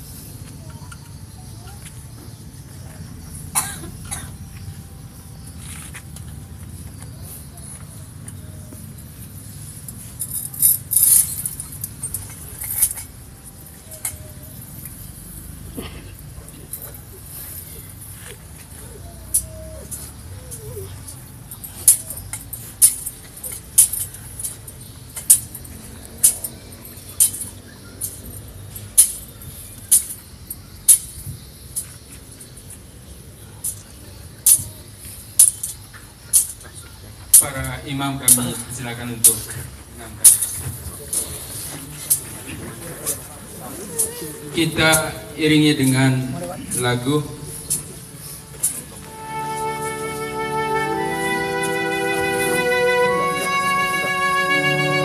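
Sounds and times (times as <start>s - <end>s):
person coughing: 3.5s - 4.3s
hushed crowd: 38.4s - 55.0s.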